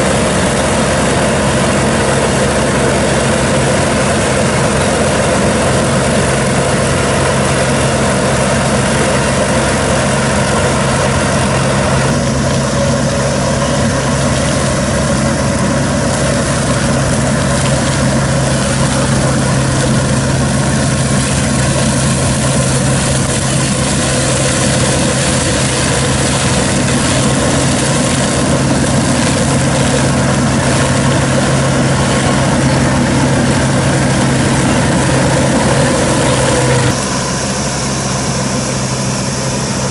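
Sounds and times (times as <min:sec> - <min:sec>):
mower engine humming: 0:00.0 - 0:39.9.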